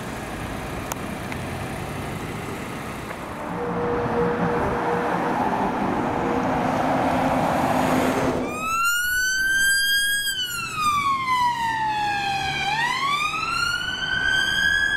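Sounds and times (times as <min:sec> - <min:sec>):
vehicle passing: 0:01.2 - 0:08.8
wailing siren: 0:03.4 - 0:06.6, 0:08.3 - 0:14.9.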